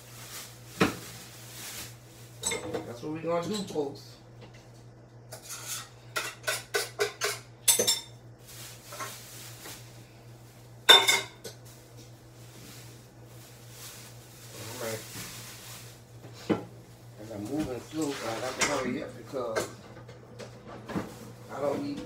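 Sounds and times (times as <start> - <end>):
steady low hum: 0.0 - 22.0
dishes and utensils clattering: 2.4 - 3.8, 5.3 - 8.2, 10.9 - 11.6, 17.6 - 22.0.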